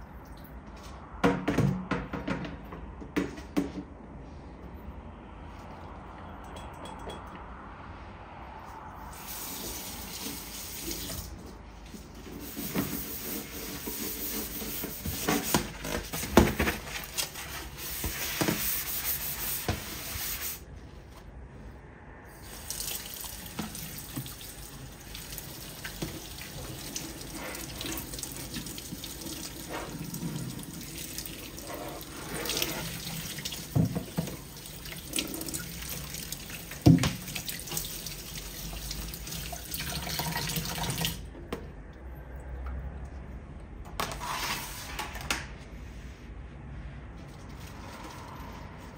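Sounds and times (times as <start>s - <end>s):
filter being scrubbed: 11.9s - 16.3s, 16.9s - 20.6s, 31.5s - 33.4s.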